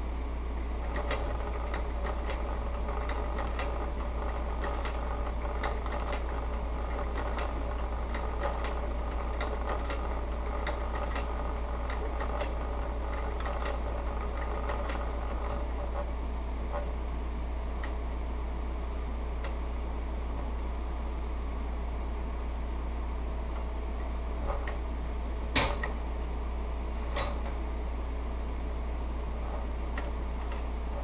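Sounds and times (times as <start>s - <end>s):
sewing machine stitching leather: 0.8s - 16.1s.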